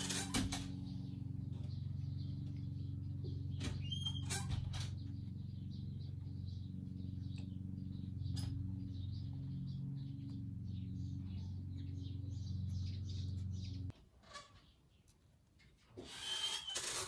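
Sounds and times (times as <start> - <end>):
steady low hum: 0.0 - 14.0
small birds chirping: 0.0 - 17.0.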